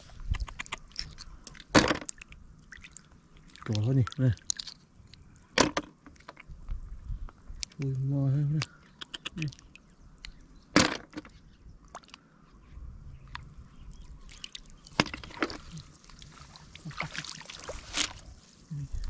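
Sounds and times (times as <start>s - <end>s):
hands splashing in muddy water: 14.2s - 18.6s.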